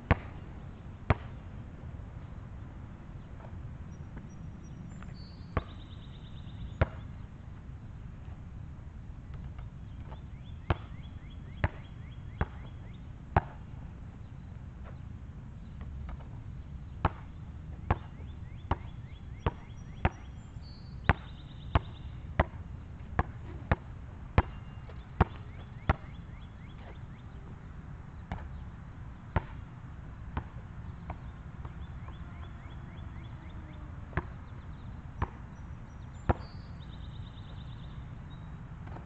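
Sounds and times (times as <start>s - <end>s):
basketball bouncing on asphalt: 0.0s - 0.4s, 1.0s - 1.4s, 5.1s - 7.2s, 9.3s - 13.6s, 15.7s - 20.4s, 21.0s - 27.2s, 28.2s - 28.6s, 29.3s - 29.7s, 30.3s - 33.5s, 34.1s - 34.4s, 35.2s - 39.0s
low steady rumble: 0.0s - 39.0s.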